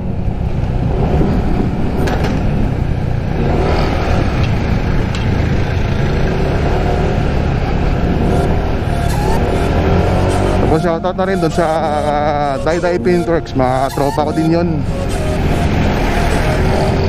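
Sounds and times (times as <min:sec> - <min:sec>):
wind noise: 0:00.0 - 0:05.8
road noise: 0:00.0 - 0:17.0
scooter engine running: 0:00.1 - 0:10.7.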